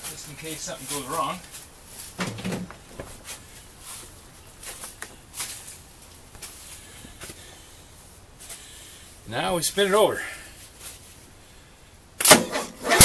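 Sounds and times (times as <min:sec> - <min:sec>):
rustling: 0:00.0 - 0:09.2, 0:10.5 - 0:11.8.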